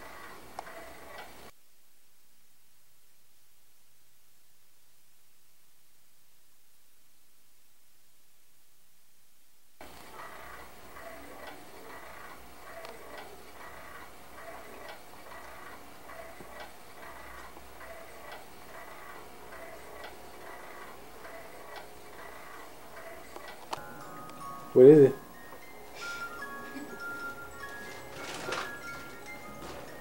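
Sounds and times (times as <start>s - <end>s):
baby swing drive ticking: 10.1s - 25.8s.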